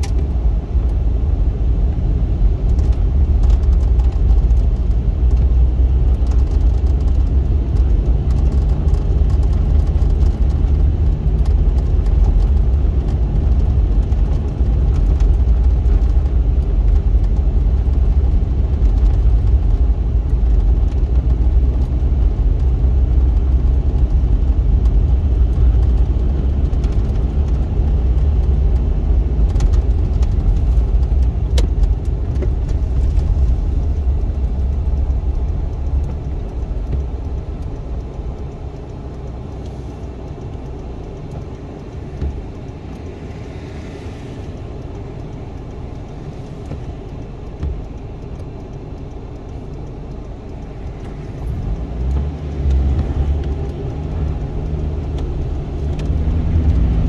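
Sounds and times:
car engine rumble in cabin: 0.0s - 57.0s
tyres on snowy road: 0.0s - 57.0s.

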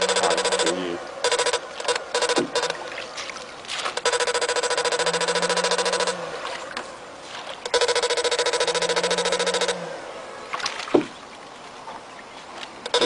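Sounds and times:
harsh pulsing electric buzz: 0.0s - 2.8s, 4.0s - 6.7s, 7.7s - 10.5s.

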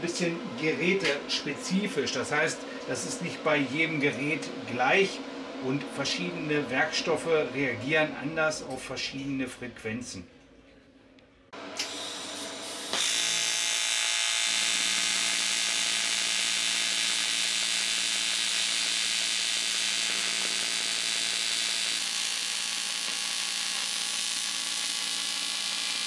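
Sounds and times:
welding arc buzzing hiss: 11.7s - 26.0s.

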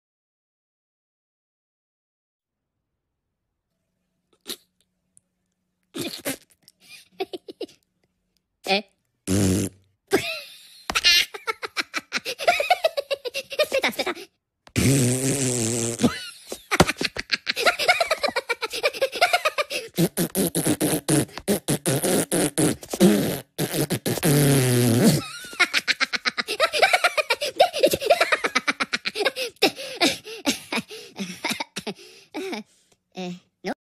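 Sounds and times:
blowing raspberries: 9.2s - 9.9s, 14.8s - 16.6s, 18.8s - 25.3s.

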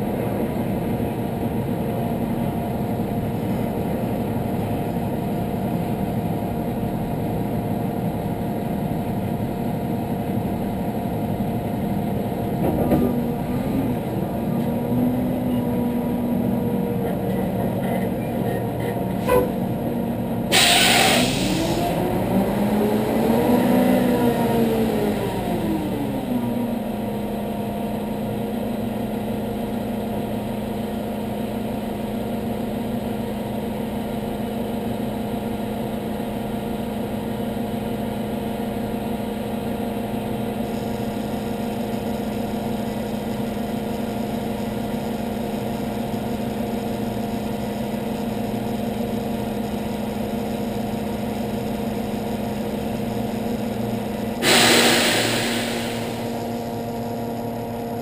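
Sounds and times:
sudden loud burst of noise: 20.5s - 22.1s, 54.4s - 57.0s.

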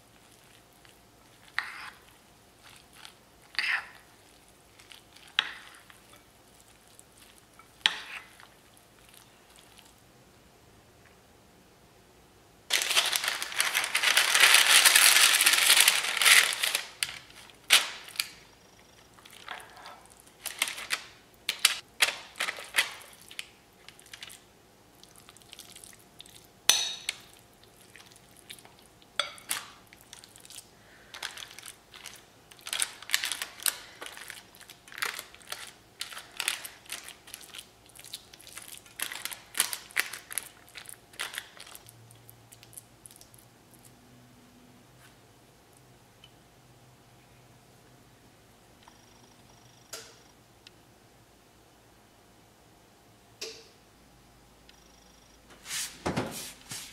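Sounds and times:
baking parchment crinkling: 12.7s - 24.5s, 27.0s - 41.9s.

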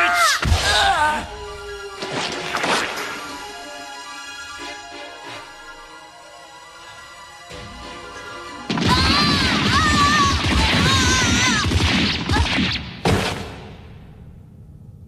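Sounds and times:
film score music: 0.0s - 15.0s
crashing blast with shriek: 8.6s - 13.7s.

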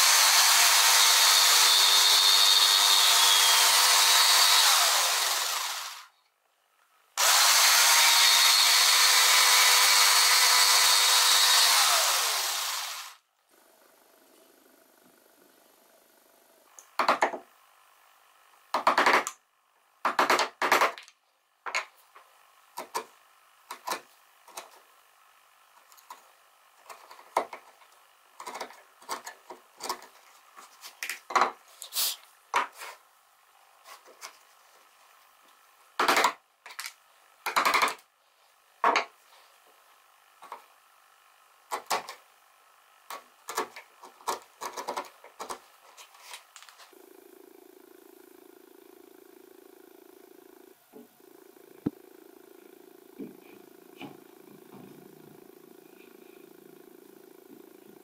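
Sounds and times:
chisel cutting wood: 0.0s - 6.1s, 7.2s - 13.2s, 28.4s - 30.2s, 41.7s - 42.2s, 43.1s - 45.6s.

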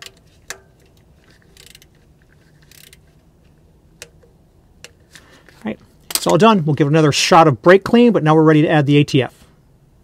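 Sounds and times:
ratchet ratcheting: 0.0s - 5.0s.

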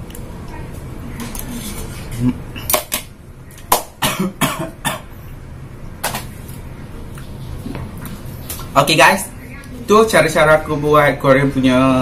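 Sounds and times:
man eating with mouth noises: 0.0s - 3.8s.

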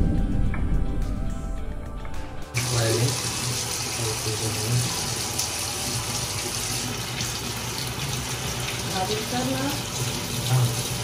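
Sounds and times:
tap water running into sink: 2.6s - 11.0s.

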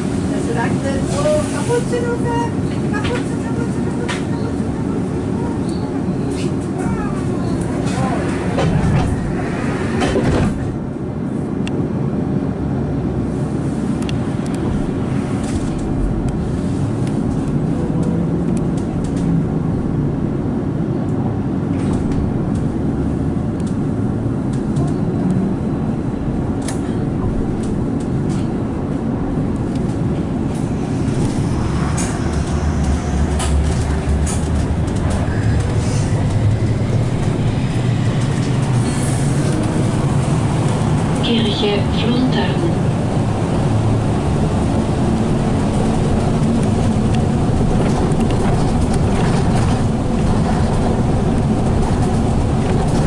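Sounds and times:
road rumble: 0.0s - 53.0s.

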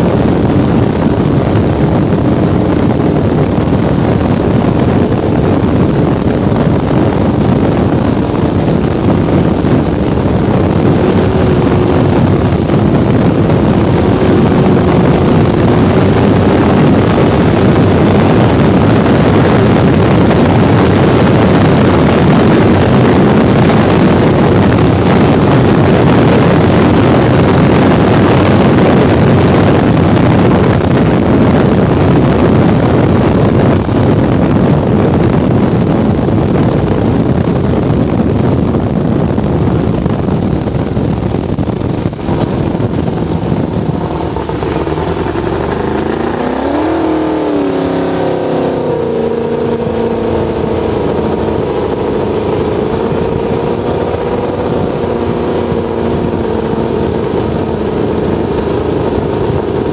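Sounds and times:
race boat engine running hard: 0.0s - 59.9s
rush of wind and water: 0.0s - 59.9s.

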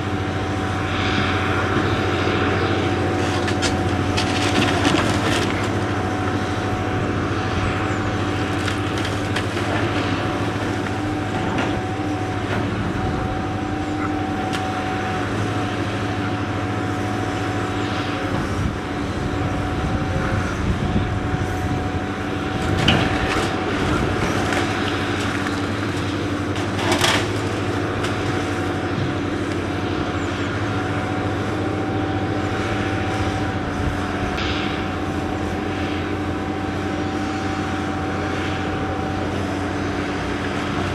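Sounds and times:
excavator engine humming: 0.0s - 40.9s
falling bricks crunching: 3.3s - 5.9s.

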